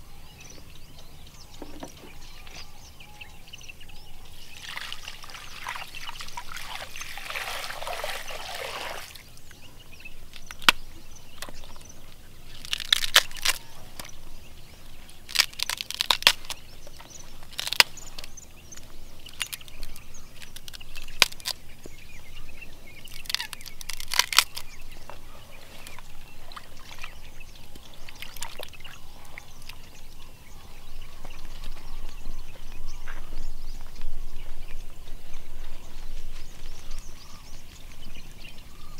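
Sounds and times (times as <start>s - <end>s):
water pouring: 4.6s - 9.2s.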